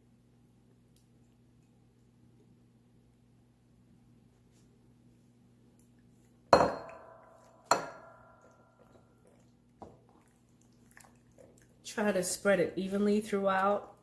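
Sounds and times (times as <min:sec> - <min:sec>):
glass bowl ringing clinks: 0:06.6 - 0:08.1.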